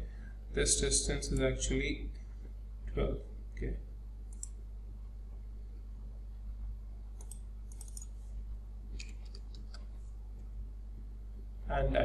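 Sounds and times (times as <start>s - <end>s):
low electrical hum: 0.0s - 12.0s
computer mouse clicking: 4.3s - 4.6s, 7.2s - 8.2s, 9.0s - 10.5s.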